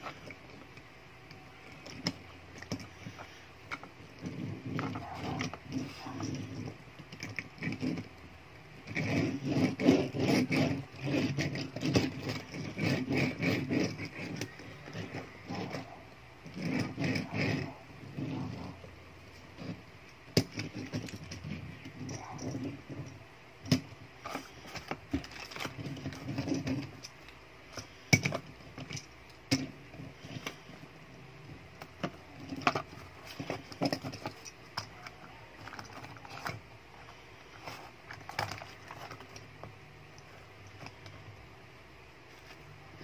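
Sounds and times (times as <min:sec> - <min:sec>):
soft rustle: 0:42.2 - 0:43.0.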